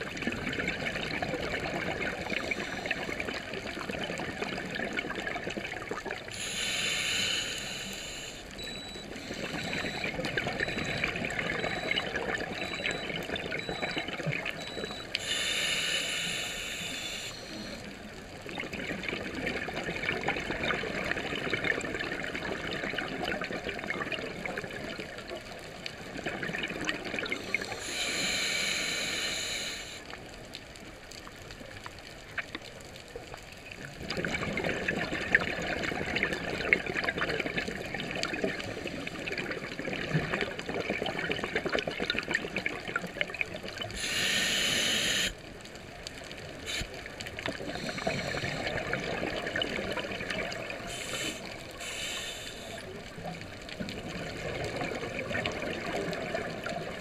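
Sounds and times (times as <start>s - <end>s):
exhaust bubbles bubbling: 0.0s - 6.2s, 34.0s - 44.0s, 47.4s - 51.6s
hissing regulator inhale: 6.3s - 8.5s, 15.2s - 17.8s, 27.4s - 30.1s, 43.9s - 45.4s, 47.6s - 48.8s, 50.9s - 52.9s.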